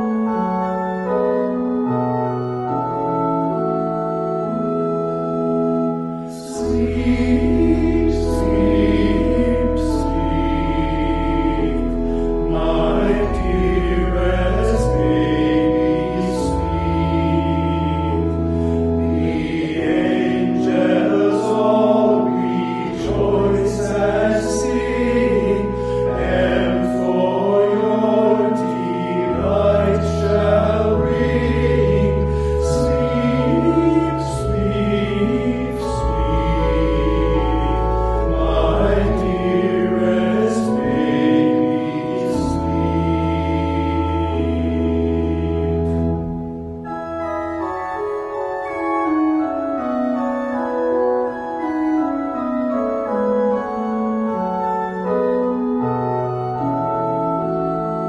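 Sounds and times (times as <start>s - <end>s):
men singing in harmony: 6.3s - 46.0s.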